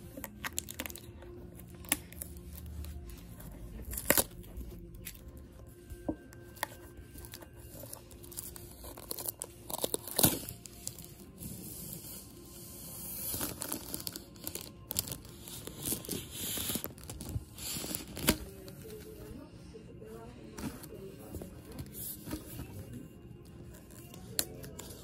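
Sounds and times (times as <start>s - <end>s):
vinyl sheet crackling and crinkling: 0.0s - 25.0s.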